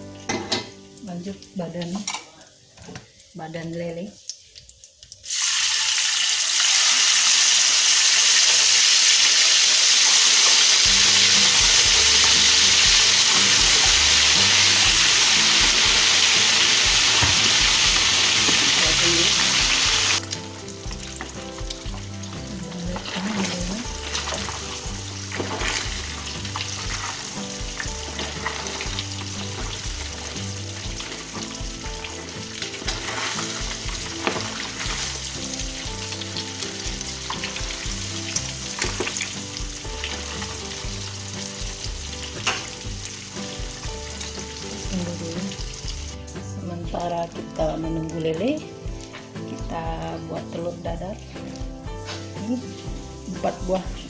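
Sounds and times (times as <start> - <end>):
fish frying in hot oil: 0.0 - 54.0
oil crackling: 4.2 - 46.4.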